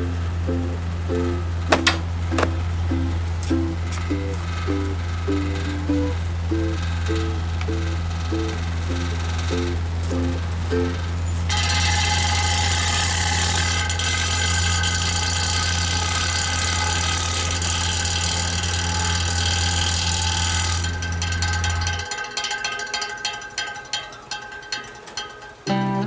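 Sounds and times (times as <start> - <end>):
high motor whine: 0.0 - 22.1
fan motor humming: 0.0 - 23.7.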